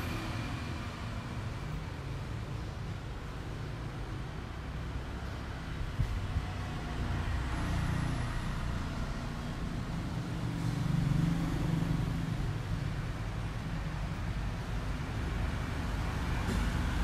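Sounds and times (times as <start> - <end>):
road traffic passing: 0.0 - 17.0.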